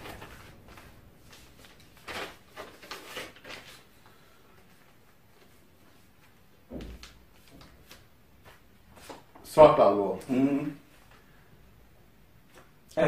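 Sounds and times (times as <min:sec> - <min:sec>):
paper rustling: 0:00.0 - 0:06.4.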